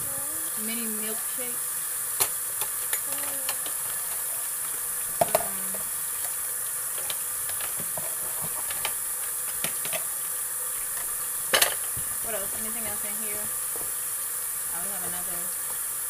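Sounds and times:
faucet running into sink: 0.0 - 16.0
dishes clinking: 5.2 - 5.8.

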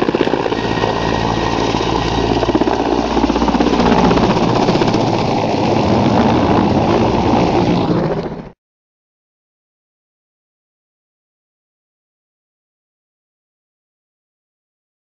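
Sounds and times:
helicopter engine drone: 0.0 - 8.6
helicopter rotor chop: 0.0 - 8.6.

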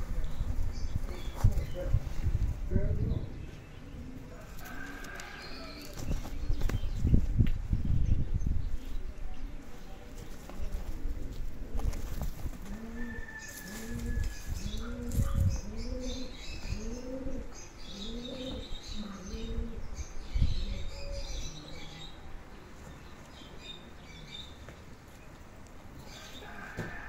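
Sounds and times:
small birds chirping: 0.0 - 12.3, 13.0 - 27.0
bird cooing: 3.8 - 6.0, 12.6 - 22.2.

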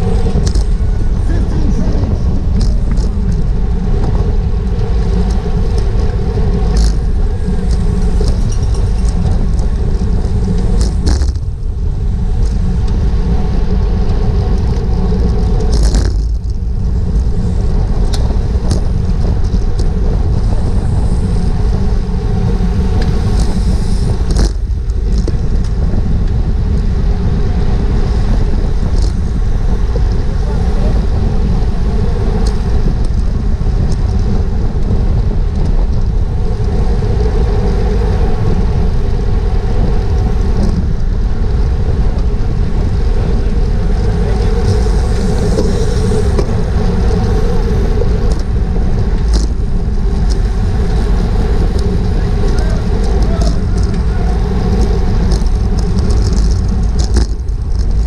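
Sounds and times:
steady hum: 0.0 - 58.0
wind rush over microphone: 0.0 - 58.0.

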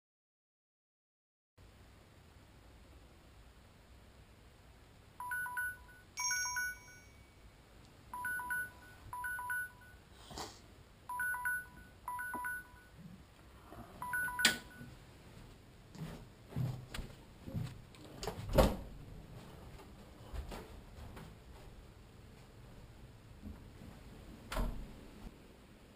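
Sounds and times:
phone alarm chime: 5.2 - 7.4, 8.2 - 10.1, 11.1 - 13.0, 14.0 - 14.9.

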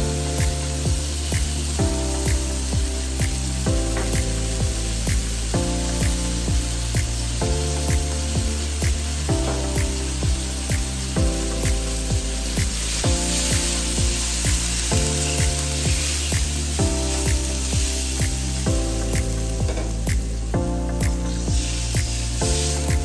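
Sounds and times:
background music with beat: 0.0 - 23.0
food sizzling in a wok: 0.0 - 23.0.

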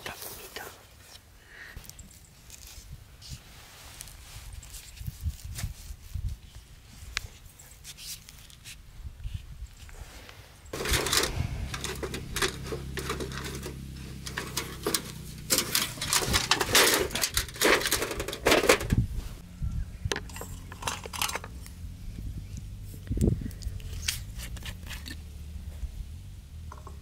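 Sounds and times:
metal plates clinking and clattering: 10.8 - 19.0, 20.2 - 21.6.

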